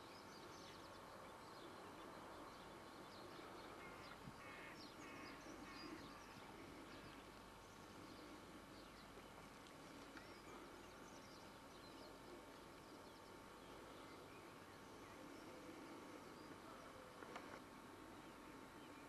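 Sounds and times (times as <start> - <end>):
steady low hiss: 0.0 - 19.0
birds chirping and calling: 2.7 - 17.0.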